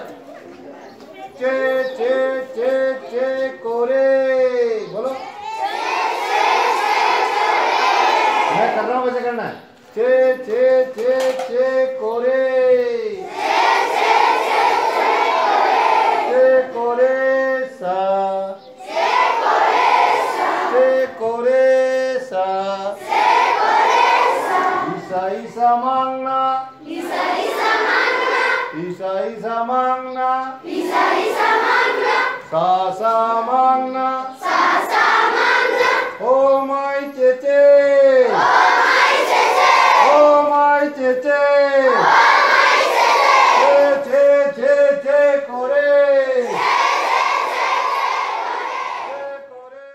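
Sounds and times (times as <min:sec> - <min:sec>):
teacher singing lines: 0:00.0 - 0:08.9, 0:09.9 - 0:49.9
children chanting in chorus: 0:05.3 - 0:08.7, 0:13.2 - 0:16.4, 0:18.8 - 0:21.0, 0:22.9 - 0:25.0, 0:26.8 - 0:28.8, 0:30.6 - 0:32.5, 0:34.2 - 0:36.2, 0:38.3 - 0:40.2, 0:41.9 - 0:44.0, 0:46.4 - 0:49.2.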